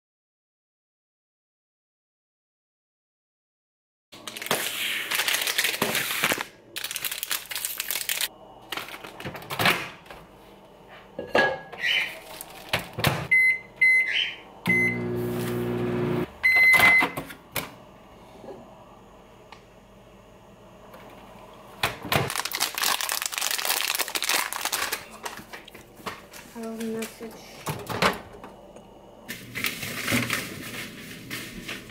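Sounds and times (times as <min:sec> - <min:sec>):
plastic wrapper tearing: 0:04.2 - 0:09.2, 0:22.2 - 0:25.8
plastic wrapper crinkling: 0:04.2 - 0:09.3, 0:22.3 - 0:25.8
microwave oven humming: 0:08.2 - 0:22.7, 0:24.7 - 0:31.1
microwave keypad beeps: 0:13.3 - 0:15.2, 0:16.4 - 0:17.2
long microwave beep: 0:13.3 - 0:17.2.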